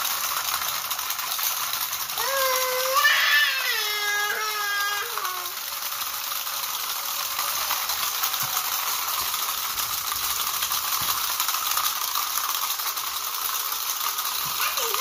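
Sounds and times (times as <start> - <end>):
clockwork toys whirring: 0.0 - 15.0
plastic feet tapping on tiles: 7.5 - 12.9.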